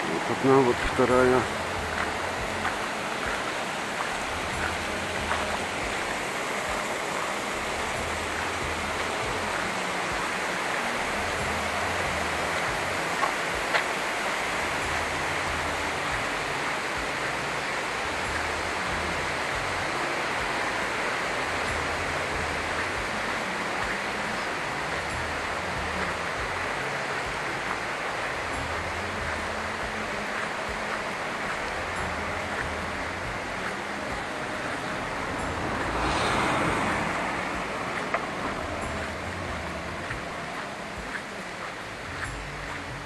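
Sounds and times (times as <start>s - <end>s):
stream cascading over rocks: 0.0s - 43.0s.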